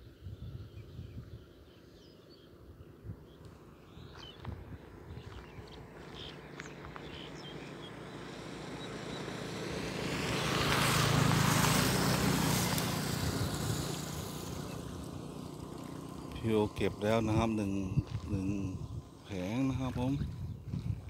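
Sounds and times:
motor vehicle passing by: 1.4s - 21.0s.

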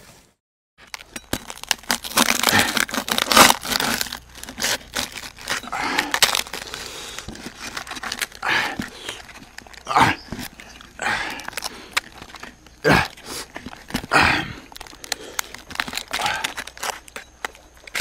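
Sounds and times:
crisp skin crackling and tearing: 0.8s - 18.0s
leaves crinkling: 0.8s - 18.0s.

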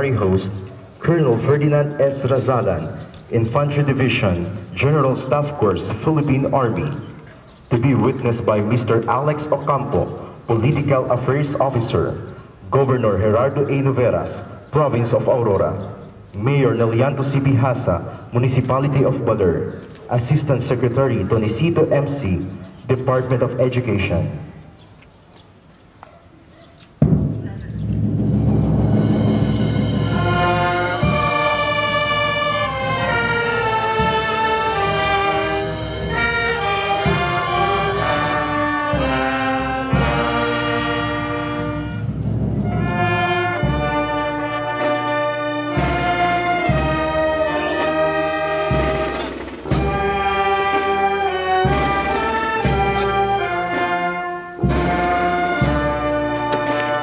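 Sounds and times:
low drum beat: 27.0s - 57.0s
slow solemn brass music: 27.9s - 57.0s.

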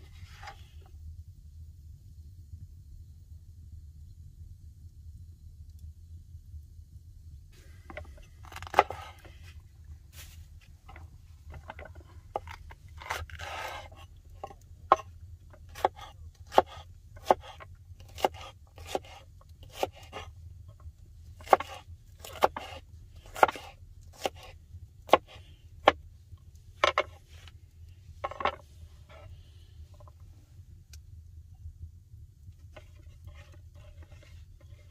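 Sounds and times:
knife scraping board: 7.9s - 9.6s, 11.5s - 15.1s, 15.7s - 20.3s, 21.4s - 26.0s, 32.7s - 34.9s
knife chopping on wooden board: 15.7s - 20.2s, 21.4s - 24.5s, 25.1s - 26.0s.

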